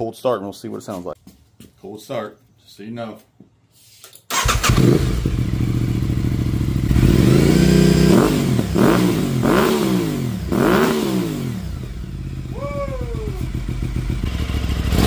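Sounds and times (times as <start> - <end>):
motorcycle engine revving: 4.3 - 15.0
motorcycle engine starting and idling: 4.3 - 15.0.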